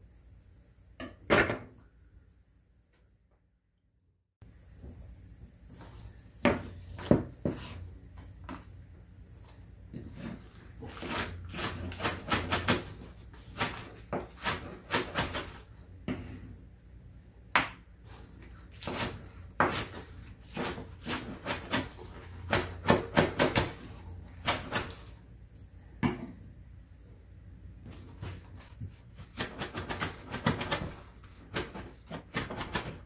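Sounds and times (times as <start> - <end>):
knife chopping on wooden board: 18.8 - 23.8.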